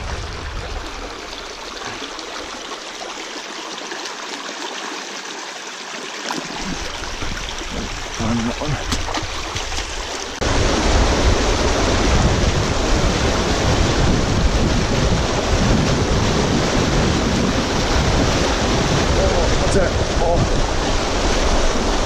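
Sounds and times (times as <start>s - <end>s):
river water rushing over rocks: 0.0s - 5.3s, 6.2s - 22.0s
water trickling: 0.0s - 10.4s.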